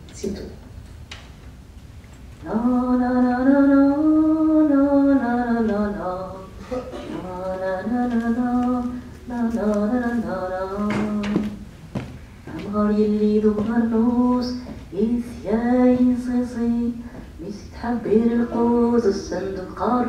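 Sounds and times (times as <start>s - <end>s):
woman singing unaccompanied: 2.4s - 11.7s, 12.5s - 20.0s.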